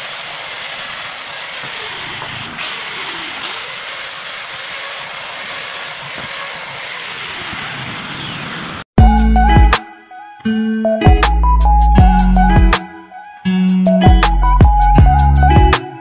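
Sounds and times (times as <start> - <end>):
angle grinder sanding wood: 0.0 - 8.8
music: 9.0 - 16.0.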